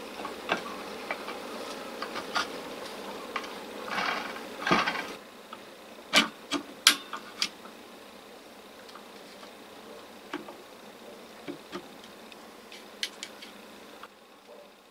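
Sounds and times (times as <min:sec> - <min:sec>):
sharp knocks of motor housing: 0:06.1 - 0:07.8.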